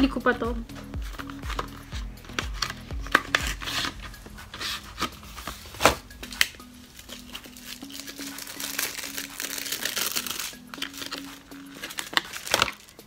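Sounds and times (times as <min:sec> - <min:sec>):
plastic packaging crinkling: 0:01.0 - 0:13.0
plastic packaging clicks: 0:05.0 - 0:13.0.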